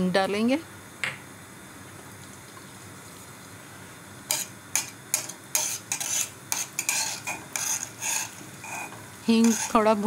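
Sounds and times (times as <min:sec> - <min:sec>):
oil sizzling: 0:00.8 - 0:10.0
metal spatula scraping a pan: 0:04.3 - 0:10.0.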